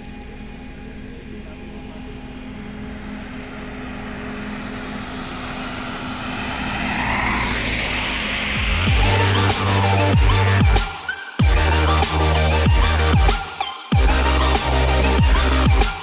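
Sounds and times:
steady low hum: 0.0s - 10.8s
vehicle engine and tyre noise: 2.4s - 10.8s.

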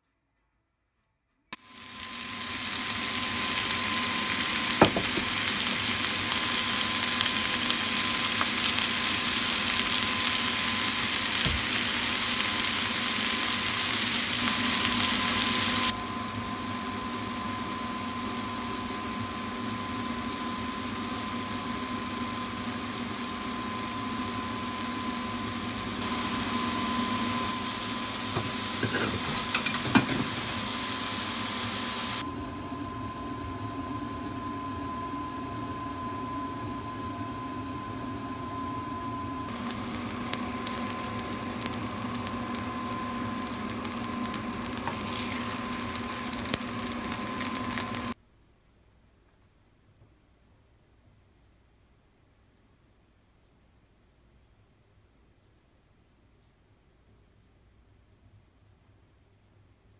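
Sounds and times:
vegetables sizzling in frying pan: 1.6s - 32.2s, 39.5s - 48.2s.

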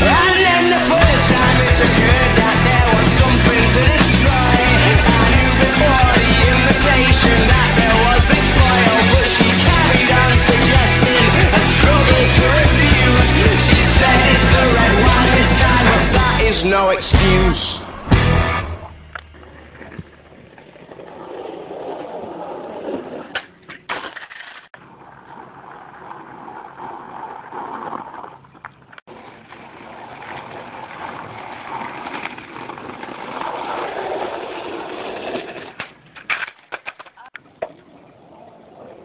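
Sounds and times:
skateboard wheels rolling on concrete: 0.0s - 39.0s
skateboard popping and landing: 17.9s - 39.0s.

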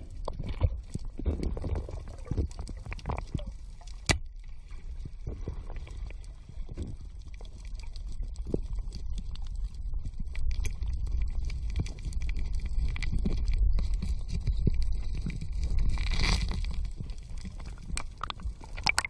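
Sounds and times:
underwater rumble: 0.0s - 19.0s
sharp underwater clicks: 10.3s - 19.0s.

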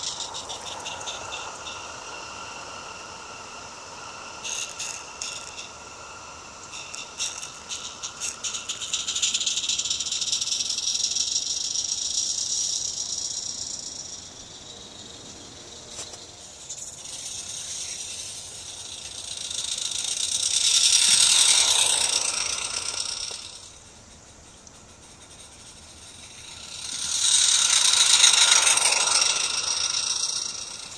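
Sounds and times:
steam locomotive chuffing: 17.4s - 24.4s, 25.0s - 30.9s.

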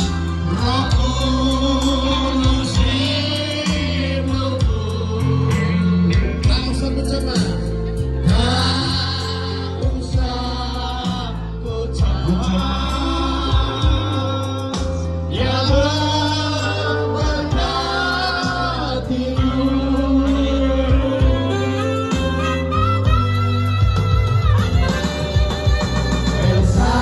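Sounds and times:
man singing into a microphone: 0.0s - 23.2s, 25.7s - 27.0s
bass line and steady beat: 0.0s - 27.0s
electronic keyboard accompaniment: 0.0s - 27.0s.

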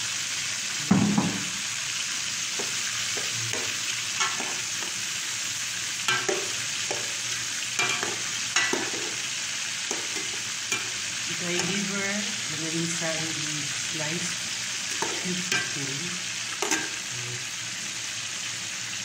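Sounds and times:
meat sizzling in hot oil: 0.0s - 19.0s
thump in pot: 0.9s - 1.6s.

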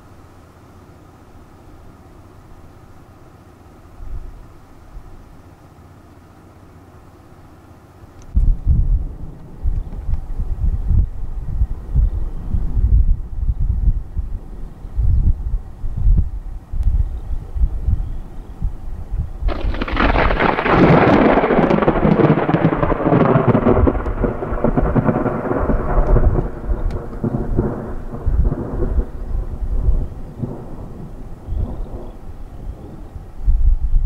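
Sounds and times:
thunder crack and rumble: 8.3s - 34.0s.

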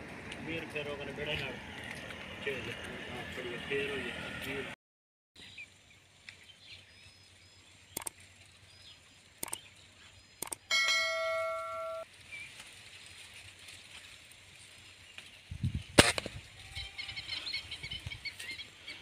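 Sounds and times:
mouse clicks: 9.4s - 9.6s, 10.4s - 10.6s
bell-like notification chime: 10.7s - 12.0s.

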